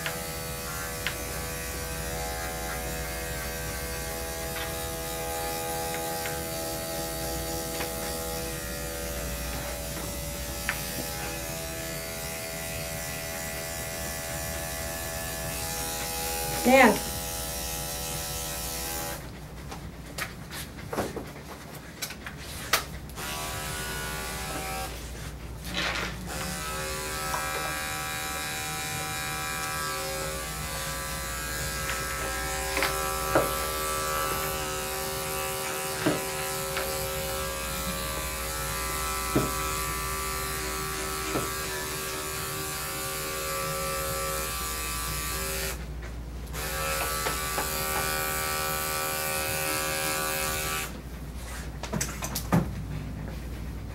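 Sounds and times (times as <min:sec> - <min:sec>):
electric clipper motor hum: 0:00.0 - 0:19.2, 0:23.2 - 0:25.0, 0:26.3 - 0:45.8, 0:46.5 - 0:51.0.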